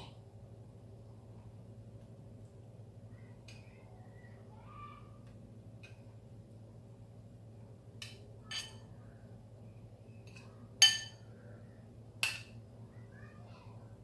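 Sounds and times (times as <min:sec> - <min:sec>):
metal spoon clinking on bowl: 0:08.5 - 0:08.9, 0:10.3 - 0:11.2.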